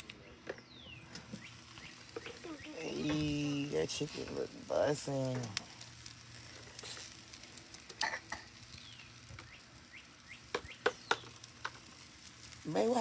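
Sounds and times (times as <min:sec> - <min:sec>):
meat sizzling on a grill: 0:00.6 - 0:13.0
fat popping and clicking: 0:10.5 - 0:11.9.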